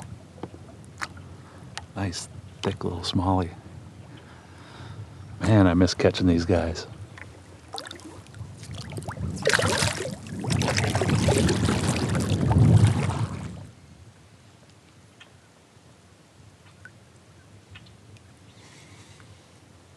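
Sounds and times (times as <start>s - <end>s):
water splashing: 7.2s - 13.8s.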